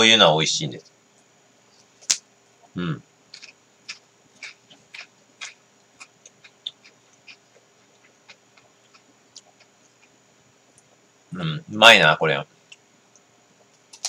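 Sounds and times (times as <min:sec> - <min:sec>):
crunchy chewing of wafer cone: 0:03.3 - 0:11.0.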